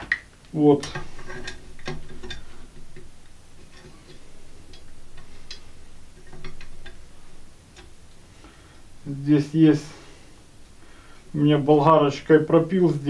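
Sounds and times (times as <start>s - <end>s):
metallic clicks of spring wire: 0.8s - 8.2s.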